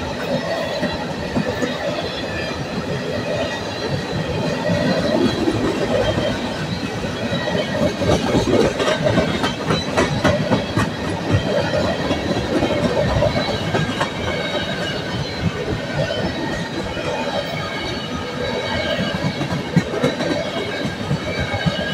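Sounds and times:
freight train rumbling past: 0.0s - 21.9s.

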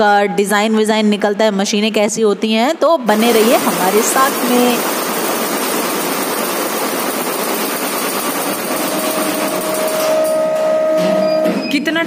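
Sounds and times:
embroidery machine running: 3.1s - 10.7s.

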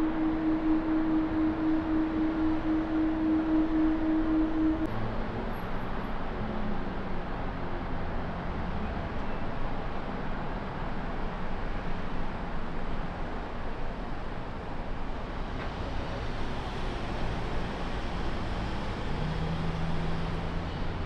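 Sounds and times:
distant jet engine rumble: 0.0s - 4.9s.

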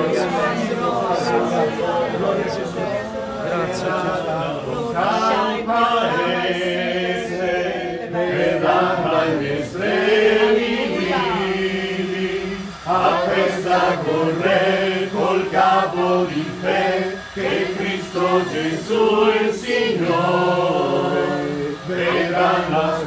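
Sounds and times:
congregation singing a hymn: 0.0s - 23.0s.

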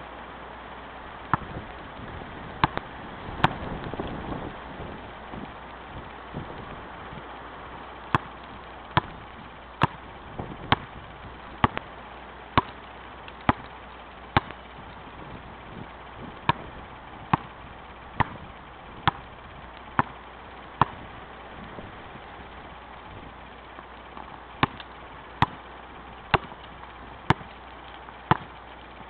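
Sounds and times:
basketball bouncing on pavement: 1.3s - 4.6s, 8.1s - 11.9s, 12.5s - 22.3s, 23.2s - 28.7s.

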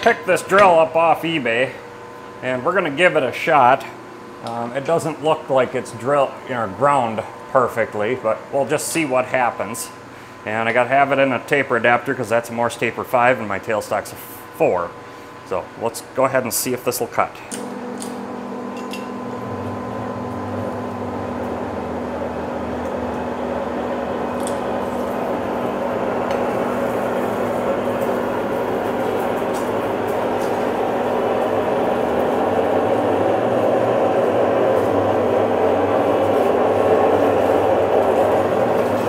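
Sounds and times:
lathe gear hum: 17.5s - 39.0s.

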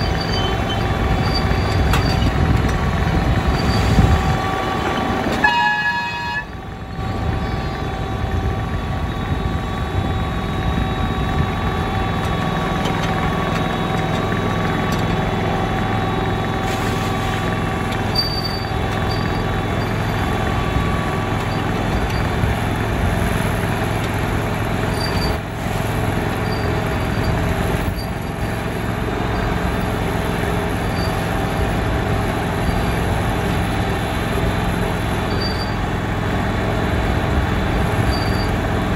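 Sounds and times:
wheels rolling on rails: 0.0s - 8.5s, 10.6s - 38.9s
miniature locomotive engine running: 0.0s - 38.9s
horn toot: 5.3s - 6.6s.

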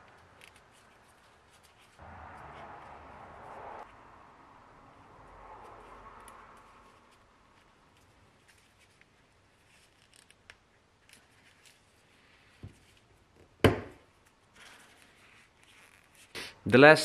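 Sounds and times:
gloved hands rubbing and clicking: 0.0s - 2.0s.

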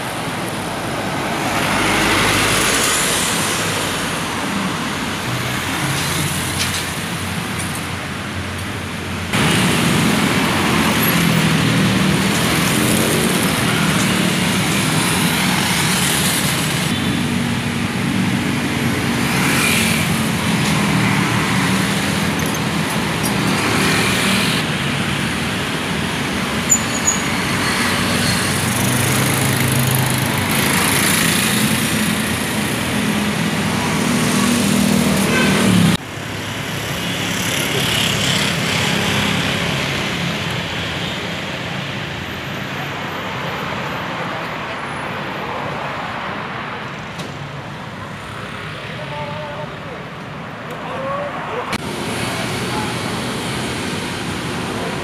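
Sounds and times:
motorcycles and cars passing: 0.0s - 55.0s.

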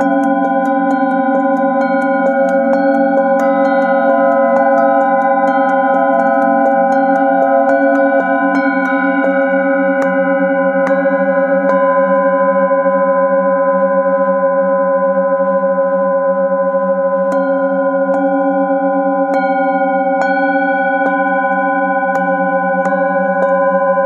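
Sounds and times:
mallet striking singing bowls: 0.0s - 12.6s, 17.3s - 24.0s
singing bowls ringing: 0.0s - 24.0s.

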